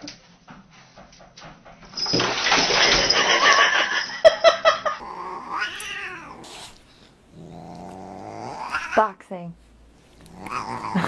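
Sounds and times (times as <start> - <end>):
cats caterwauling: 5.0 - 9.1, 10.2 - 11.0.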